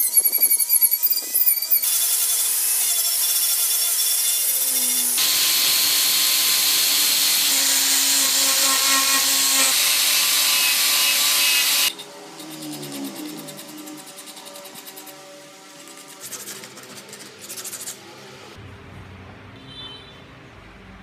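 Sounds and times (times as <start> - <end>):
rotary tool whining on wood: 0.0 - 15.2
angle grinder grinding wood: 4.0 - 16.6.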